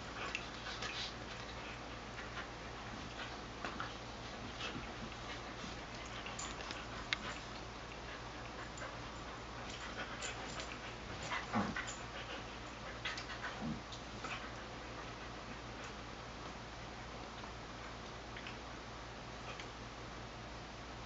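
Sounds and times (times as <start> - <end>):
dogs scuffling and clicking: 0.0 - 16.0.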